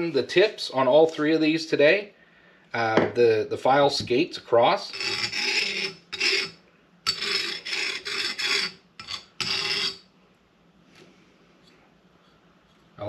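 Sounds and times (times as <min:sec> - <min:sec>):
screwdriver scraping on metal file: 0:04.8 - 0:10.0.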